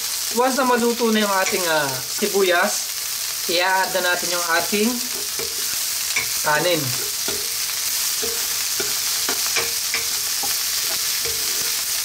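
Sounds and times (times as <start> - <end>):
vegetables sizzling in hot oil: 0.0 - 12.0
spatula scraping a wok: 4.6 - 12.0.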